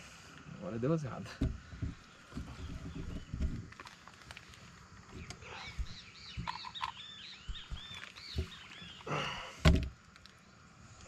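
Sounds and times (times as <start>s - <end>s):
birds chirping: 0.9s - 10.7s
rustling: 1.4s - 9.1s
loud thump: 9.6s - 9.9s.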